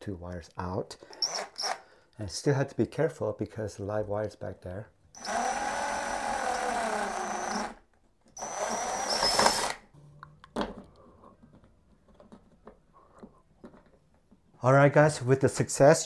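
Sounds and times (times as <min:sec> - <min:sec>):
cordless drill boring drywall: 0:01.2 - 0:01.8, 0:05.2 - 0:07.8, 0:08.4 - 0:09.9
faint clicks and scrapes: 0:10.2 - 0:14.5.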